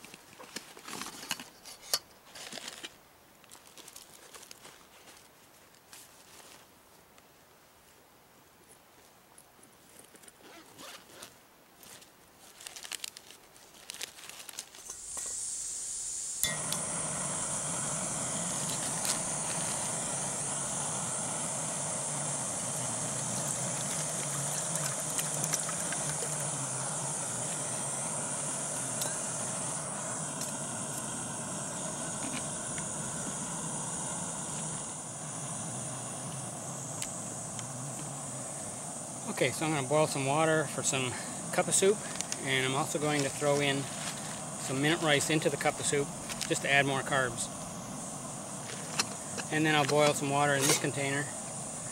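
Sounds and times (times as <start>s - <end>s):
gas flame rushing hiss: 14.8s - 51.9s
gas hissing from valve: 14.8s - 51.9s
stove igniting click: 16.4s - 34.9s, 36.2s - 38.0s, 48.6s - 51.0s.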